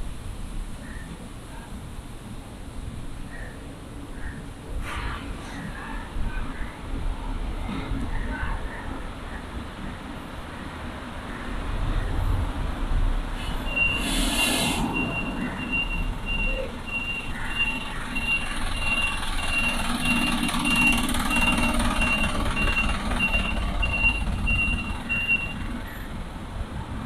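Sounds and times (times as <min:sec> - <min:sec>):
low traffic rumble: 0:00.0 - 0:27.0
vehicle reversing alarm beeping: 0:13.6 - 0:26.0.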